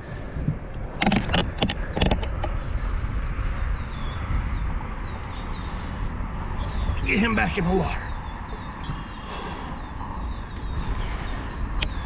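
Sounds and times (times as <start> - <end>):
wind rumble on microphone: 0.0 - 12.0
knocks and clatters in boat: 0.4 - 2.9, 8.4 - 9.4.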